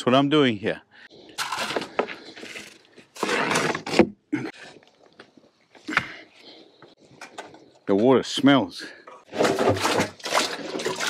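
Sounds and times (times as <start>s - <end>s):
wood scraping on wood: 1.3s - 4.5s
wood rattling: 9.2s - 11.0s.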